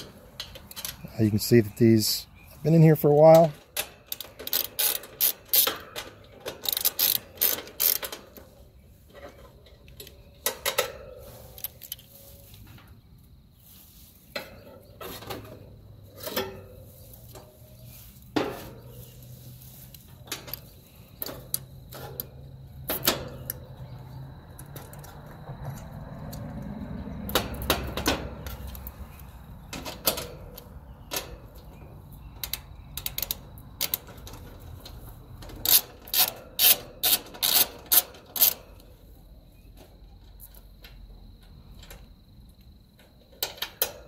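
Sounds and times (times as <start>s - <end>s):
socket ratchet clicking: 3.8s - 8.4s, 35.6s - 38.7s.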